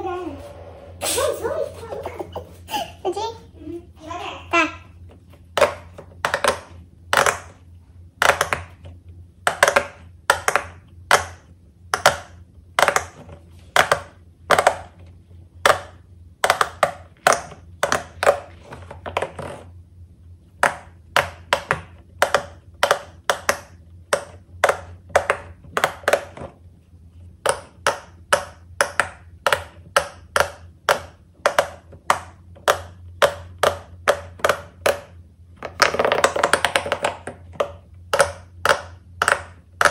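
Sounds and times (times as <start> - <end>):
pop-it bubbles popping: 5.5 - 7.6, 8.2 - 15.0, 15.6 - 18.5, 20.6 - 26.5, 27.4 - 39.9.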